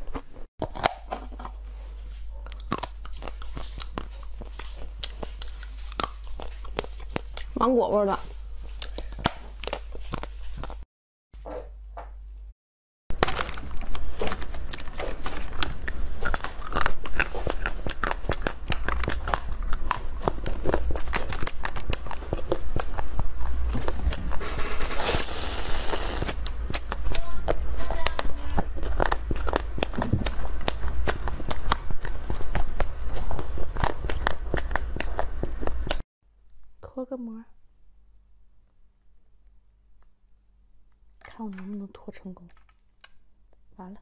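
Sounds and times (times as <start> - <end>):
chewing candy: 0.0 - 10.8, 13.2 - 36.0
chocolate candy crackling: 13.1 - 36.0.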